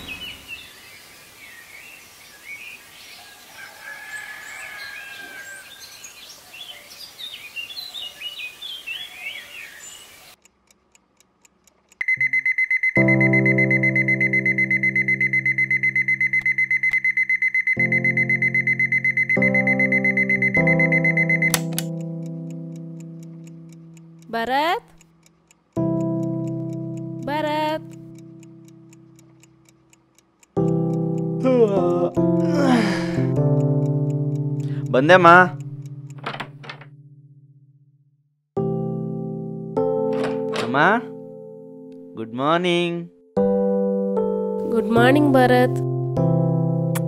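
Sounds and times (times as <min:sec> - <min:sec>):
birds chirping: 0:00.0 - 0:10.5
clock ticking: 0:10.4 - 0:32.5, 0:33.2 - 0:36.9
alarm clock ringing: 0:12.0 - 0:21.7.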